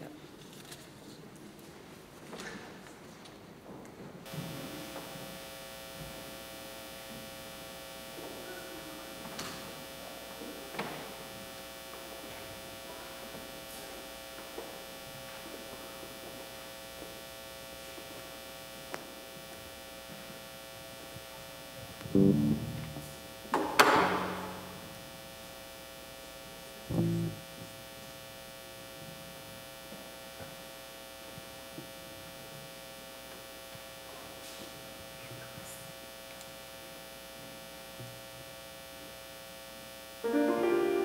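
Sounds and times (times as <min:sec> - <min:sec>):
electrical mains hum: 0:03.5 - 0:41.0
loud low pulsing sound: 0:22.1 - 0:23.5.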